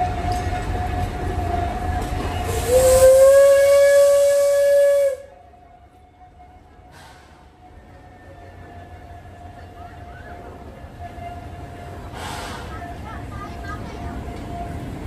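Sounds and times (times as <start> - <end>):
steam whistle blast: 2.4 - 5.4
steam hissing: 12.1 - 12.8.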